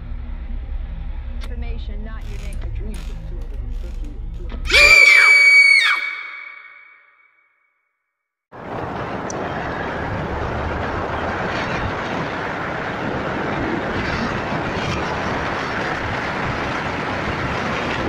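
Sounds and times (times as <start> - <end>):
road noise: 8.5 - 18.0
wind rushing: 8.6 - 18.0.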